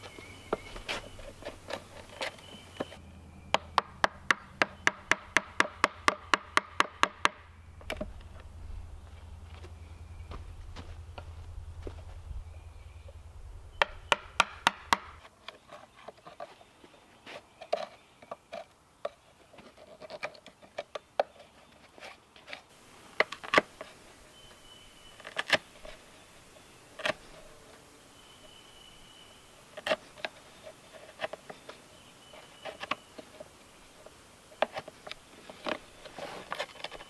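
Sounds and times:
knife carving wood: 17.6 - 24.4, 29.7 - 33.5.

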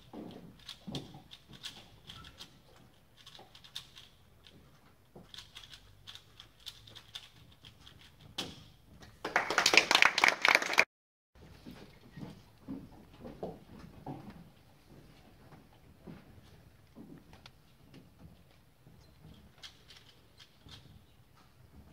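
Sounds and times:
plastic puzzle cube clicking: 3.2 - 4.1, 5.3 - 8.5.

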